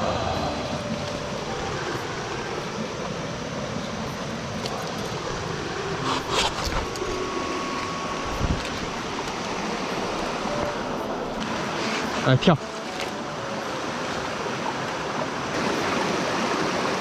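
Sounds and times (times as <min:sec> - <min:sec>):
stream rushing over stones: 0:00.0 - 0:17.0
brief rustle: 0:06.0 - 0:07.1.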